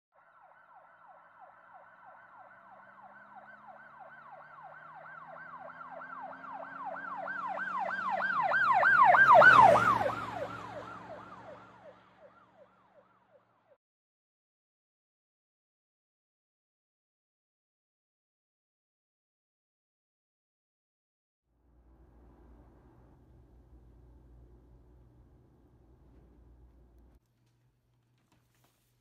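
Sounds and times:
emergency siren yelping: 0:00.2 - 0:13.4
vehicle engine rumble: 0:21.6 - 0:27.2.

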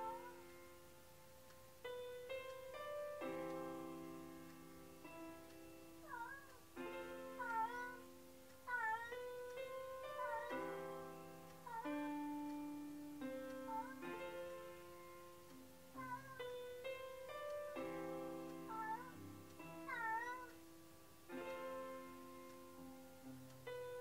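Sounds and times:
piano music: 0:00.0 - 0:24.0
cat meowing: 0:06.0 - 0:06.5, 0:08.7 - 0:09.2, 0:16.0 - 0:16.5, 0:19.9 - 0:20.5.

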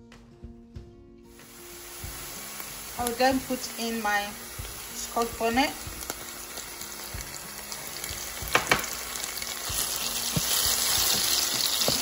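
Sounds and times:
onion sizzling in oil: 0:01.3 - 0:12.0
spoon knocking against pan: 0:08.4 - 0:09.0.

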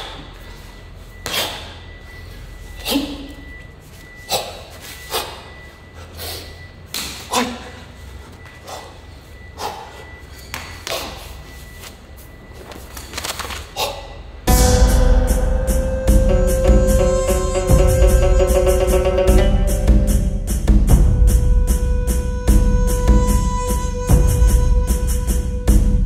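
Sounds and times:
footwork on tiled floor: 0:00.0 - 0:14.2.

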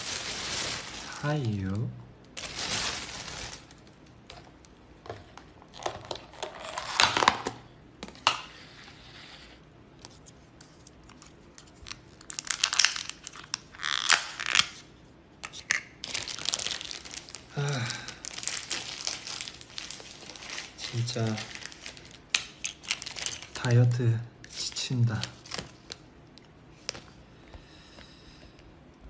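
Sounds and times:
thin plastic crinkling and tearing: 0:00.0 - 0:01.8, 0:02.4 - 0:04.0, 0:10.1 - 0:23.8, 0:24.5 - 0:27.1.

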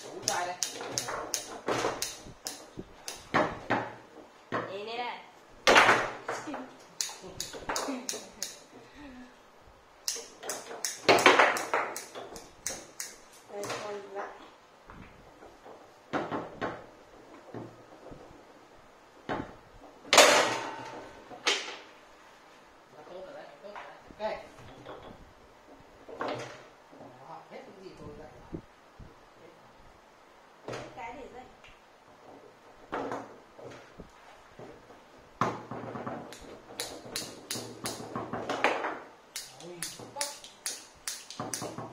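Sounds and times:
foosball ball knocking: 0:00.0 - 0:04.8, 0:05.6 - 0:06.6, 0:10.3 - 0:12.9, 0:14.9 - 0:18.4, 0:19.2 - 0:21.9, 0:32.2 - 0:33.9, 0:34.6 - 0:39.2, 0:41.4 - 0:41.9.

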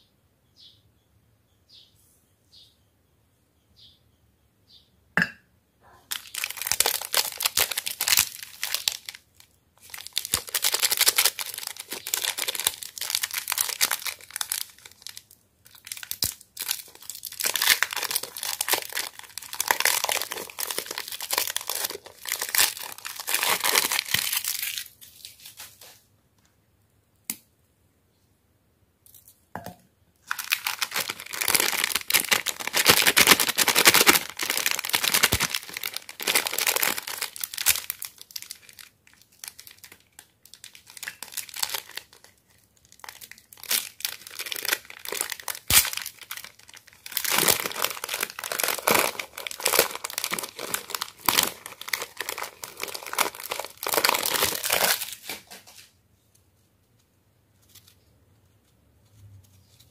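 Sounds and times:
snack wrappers crinkling and tearing: 0:06.1 - 0:25.9, 0:30.2 - 0:55.8.

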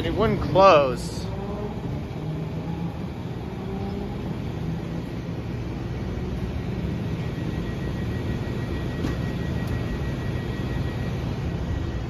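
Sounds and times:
train car equipment hum: 0:00.0 - 0:12.0
faint high steady tone: 0:04.9 - 0:12.0.

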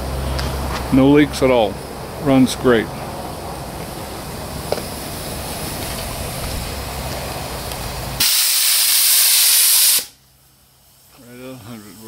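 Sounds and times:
low hum: 0:00.0 - 0:08.0
steady rushing noise: 0:00.0 - 0:08.2
safety valve steam hiss: 0:08.2 - 0:10.2.

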